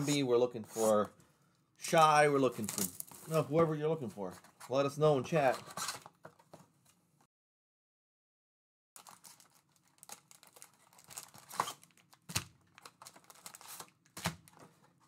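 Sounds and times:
foil packs crinkling and scraping: 2.6 - 3.4, 9.0 - 15.0.

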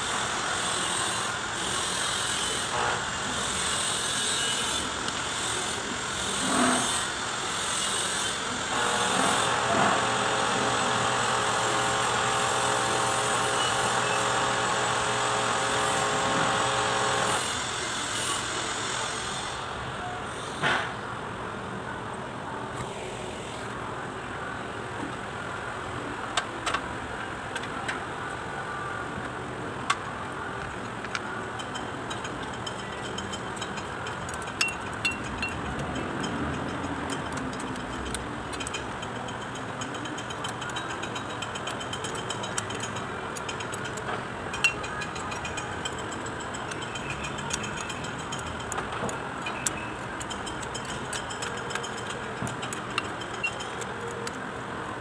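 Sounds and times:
ratchet wrench clicking: 29.9 - 54.5.

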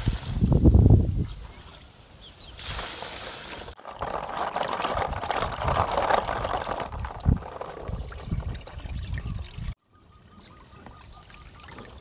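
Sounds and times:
water sloshing in a plastic basin: 2.6 - 9.8.

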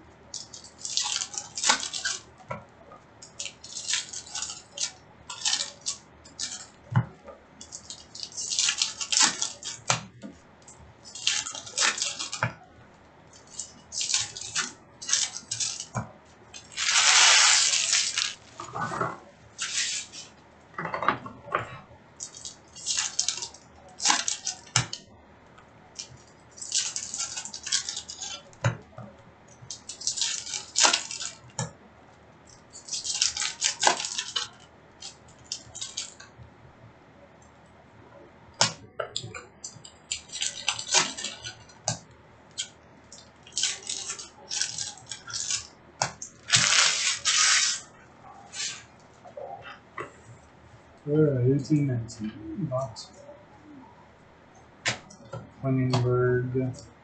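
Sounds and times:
foil wrappers crinkling: 0.3 - 2.4, 3.2 - 6.8, 7.6 - 10.2, 11.0 - 12.5, 13.3 - 18.9, 19.6 - 20.3, 22.2 - 25.1, 25.9 - 28.6, 29.5 - 31.6, 32.4 - 36.2, 38.6 - 47.9
cards being shuffled: 13.4 - 18.8, 19.6 - 20.3, 43.5 - 47.9.

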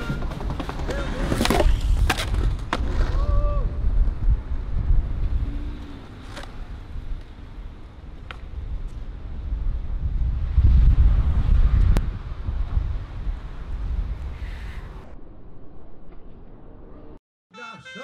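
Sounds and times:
skateboard clacks: 0.0 - 3.0
skateboard wheels rolling on concrete: 0.0 - 15.2.

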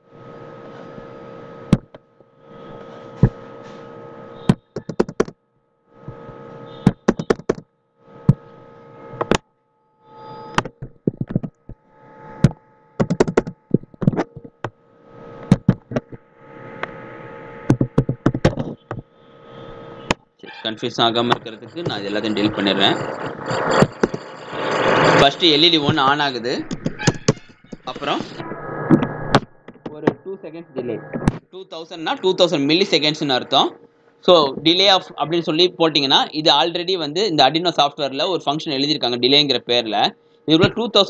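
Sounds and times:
steady hum: 0.0 - 41.0
keyboard typing: 4.5 - 5.3, 6.9 - 7.6, 12.4 - 14.7.

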